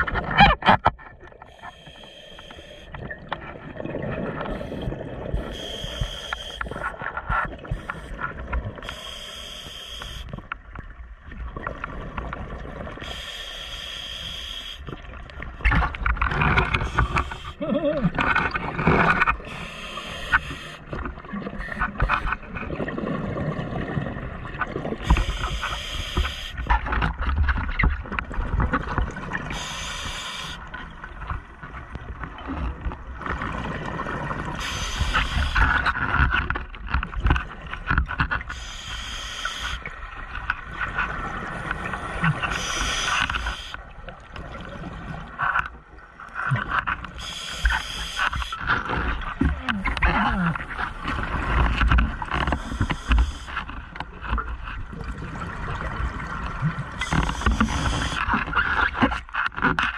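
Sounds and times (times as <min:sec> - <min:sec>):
exhaled bubbles gurgling: 0:01.2 - 0:09.0, 0:14.9 - 0:37.8, 0:54.6 - 0:59.0
regulator inhale hiss: 0:01.5 - 0:03.0, 0:04.6 - 0:06.9, 0:08.8 - 0:10.3, 0:13.0 - 0:14.9, 0:19.5 - 0:20.9, 0:25.0 - 0:26.6, 0:29.5 - 0:30.7, 0:34.6 - 0:35.8, 0:38.5 - 0:39.8, 0:42.4 - 0:43.8, 0:47.2 - 0:48.6, 0:52.5 - 0:53.6, 0:57.0 - 0:58.3.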